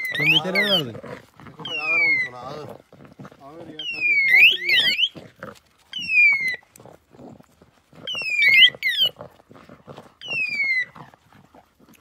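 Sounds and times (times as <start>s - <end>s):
dog whining: 0.0s - 1.0s, 1.6s - 2.7s, 3.7s - 5.2s, 5.9s - 6.8s, 8.0s - 9.2s, 10.2s - 11.3s.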